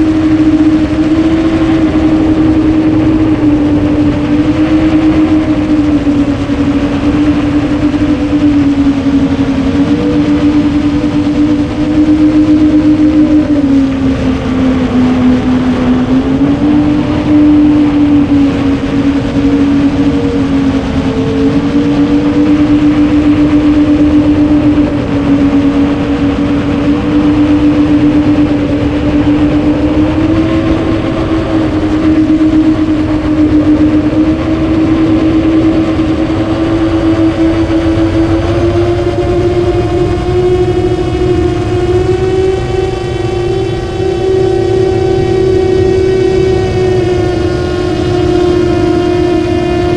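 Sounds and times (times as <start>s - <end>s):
quadcopter motors humming: 0.0s - 49.9s.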